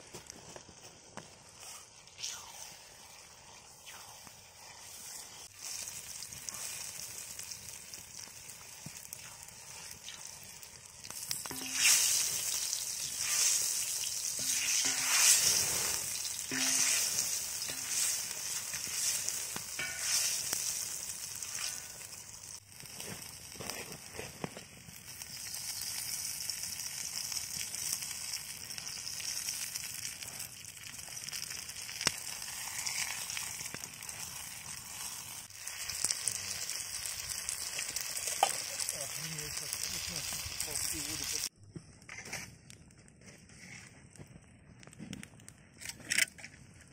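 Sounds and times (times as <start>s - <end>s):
onion and chicken sizzling: 0.0s - 41.5s
wooden spatula scraping wok: 11.4s - 22.1s.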